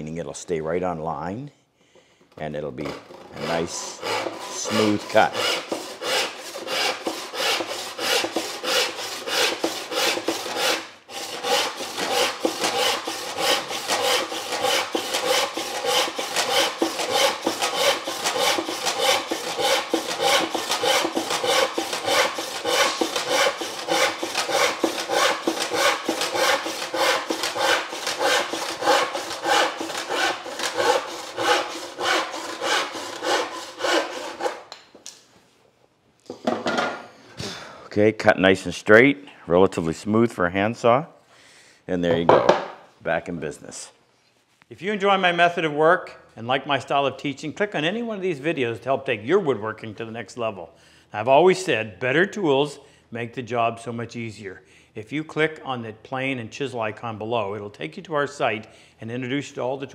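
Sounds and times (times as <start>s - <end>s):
handsaw cutting wood: 3.1s - 34.7s.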